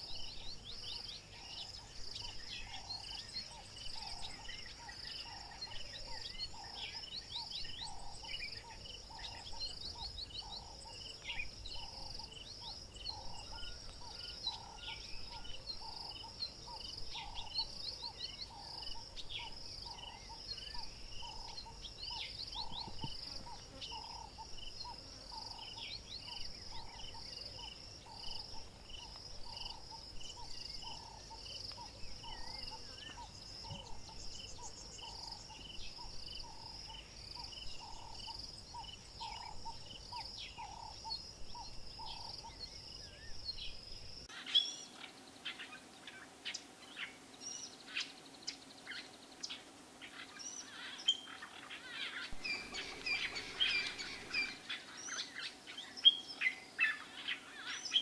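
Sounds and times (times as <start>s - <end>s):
insects trilling: 0.0s - 58.0s
whistled bird calls: 50.5s - 58.0s.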